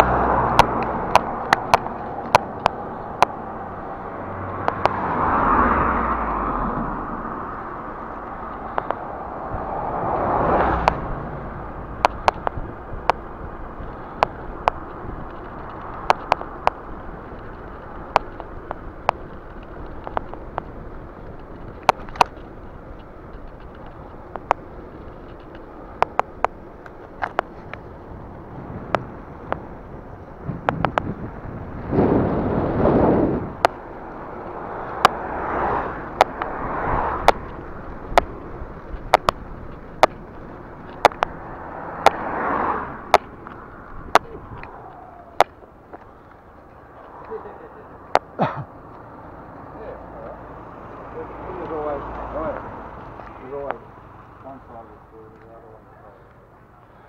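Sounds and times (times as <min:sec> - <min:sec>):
sharp clicks: 0:00.0 - 0:03.4, 0:13.9 - 0:27.9, 0:36.0 - 0:49.1
bus passing: 0:00.0 - 0:57.0
pickup truck passing: 0:00.0 - 0:57.0
road and wind noise: 0:00.0 - 0:57.0.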